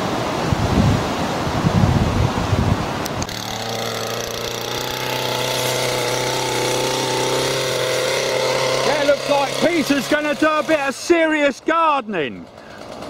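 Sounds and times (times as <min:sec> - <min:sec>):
wind buffeting microphone: 0:00.4 - 0:03.4
strimmer engine idling: 0:03.2 - 0:11.6, 0:12.3 - 0:13.0.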